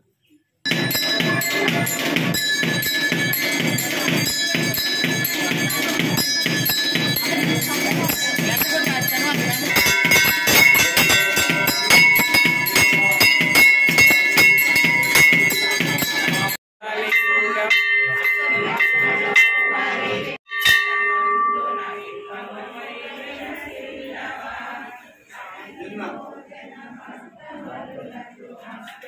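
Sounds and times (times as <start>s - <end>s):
temple bells ringing rapidly: 0.7s - 23.8s.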